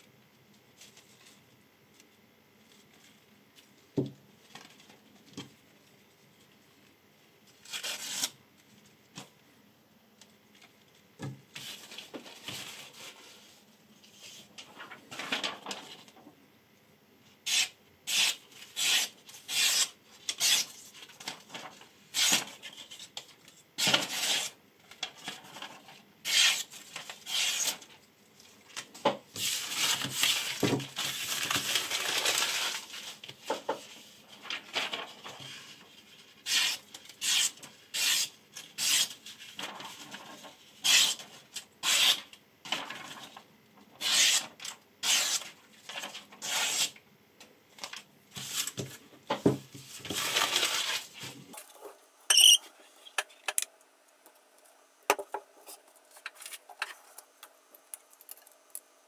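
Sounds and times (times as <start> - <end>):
knife rasping on sharpening stone: 52.3 - 52.6.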